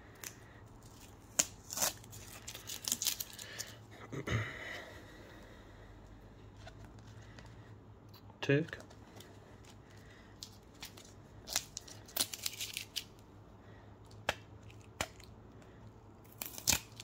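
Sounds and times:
sticky tape crackling tearing: 0:00.1 - 0:03.7, 0:10.7 - 0:13.2, 0:16.2 - 0:17.0.

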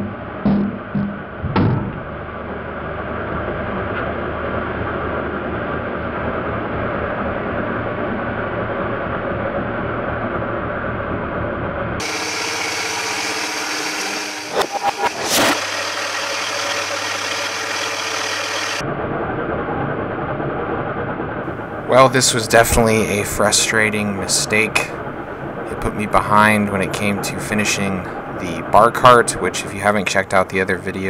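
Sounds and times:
wood lathe motor humming: 0:12.0 - 0:18.8.

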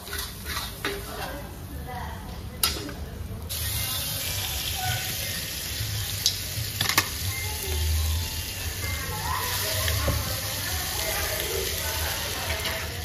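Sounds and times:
food sizzling in a wok: 0:03.5 - 0:13.0.

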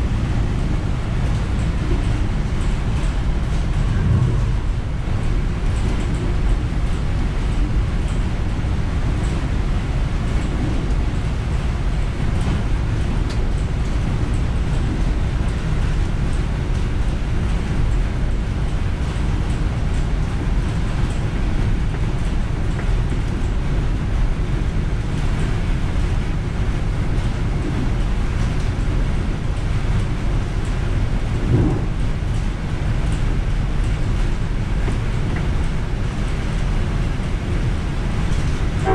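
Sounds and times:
freight train passing: 0:00.0 - 0:08.5, 0:36.0 - 0:38.9
train cab running noise: 0:00.0 - 0:38.9.

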